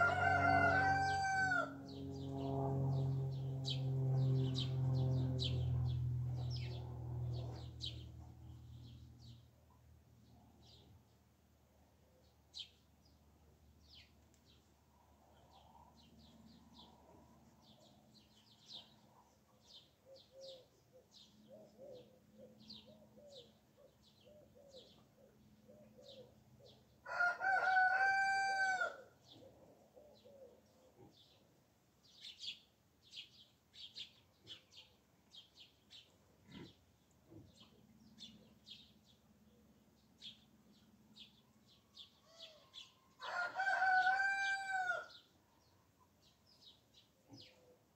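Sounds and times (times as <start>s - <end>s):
rooster crowing: 0.0s - 1.9s, 27.0s - 29.1s, 42.2s - 45.2s
small birds chirping: 29.2s - 44.0s.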